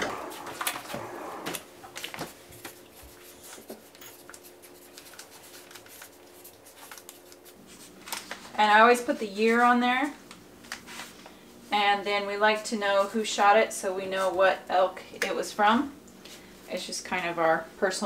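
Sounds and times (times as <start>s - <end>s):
paper packages rustling: 0.0s - 8.6s.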